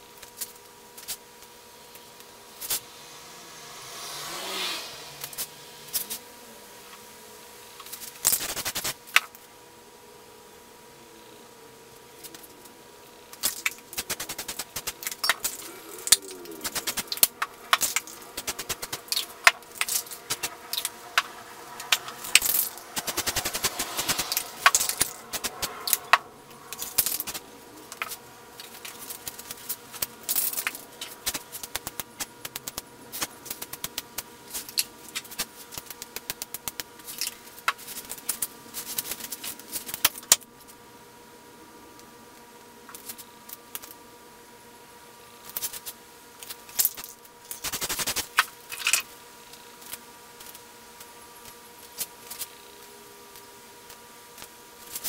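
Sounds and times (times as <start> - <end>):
spray can mixing ball rattling: 13.4 - 29.7.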